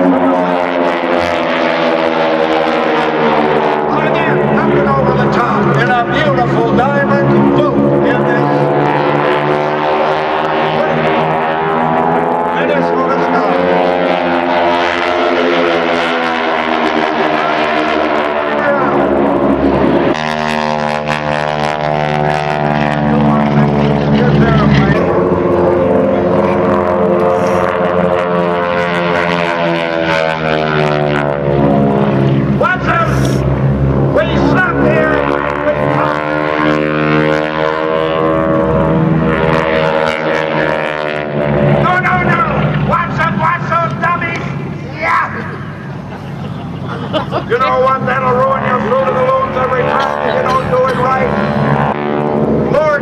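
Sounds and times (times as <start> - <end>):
propeller planes droning: 0.0 - 53.0.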